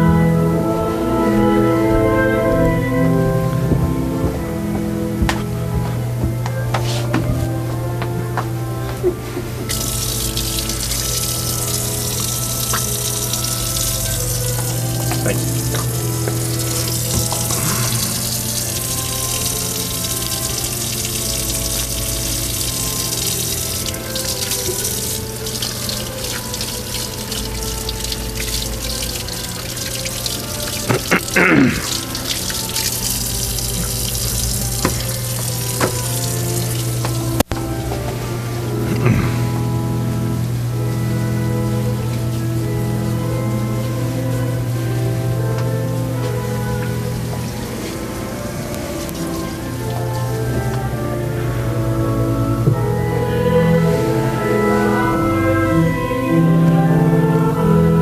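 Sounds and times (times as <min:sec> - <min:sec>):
church organ playing a hymn: 0:00.0 - 0:58.0
steady hiss: 0:09.6 - 0:51.8.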